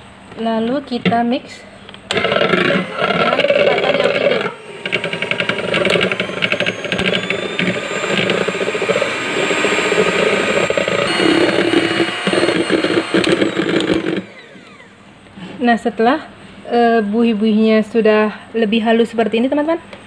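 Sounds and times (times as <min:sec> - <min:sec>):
electric mixer whipping: 0:02.1 - 0:15.3.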